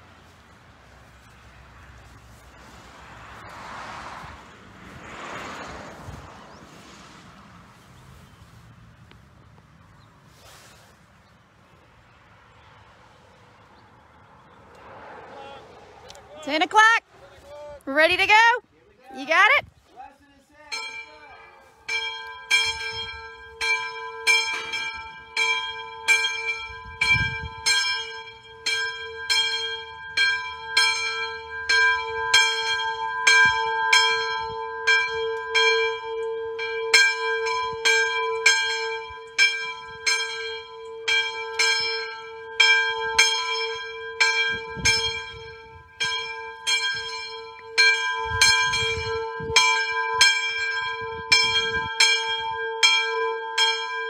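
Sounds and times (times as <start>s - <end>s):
church bell ringing: 20.6s - 54.0s.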